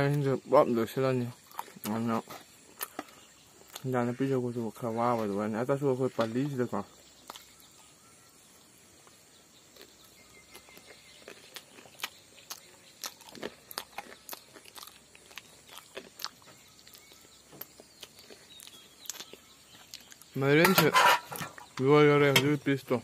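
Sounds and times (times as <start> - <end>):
person chewing and lip-smacking: 1.4 - 2.0, 2.6 - 3.9, 7.2 - 7.6, 9.7 - 20.3.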